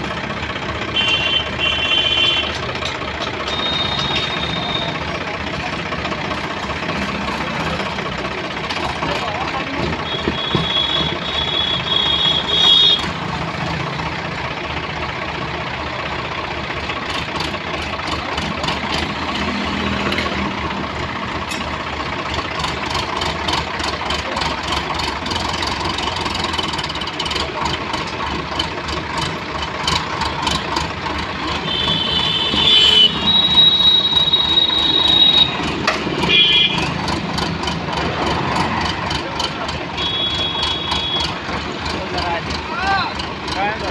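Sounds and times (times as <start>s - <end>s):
tractor diesel engine running: 0.0s - 43.9s.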